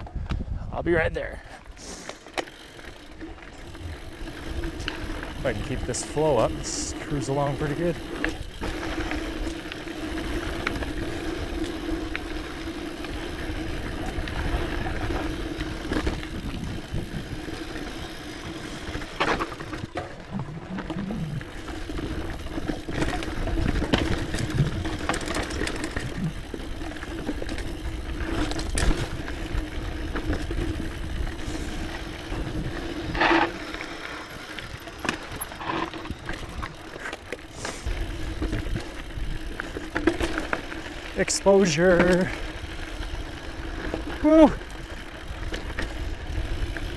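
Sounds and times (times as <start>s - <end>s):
bike tyres rolling on dirt: 0.0s - 46.9s
bike knocks and rattles: 18.1s - 33.6s.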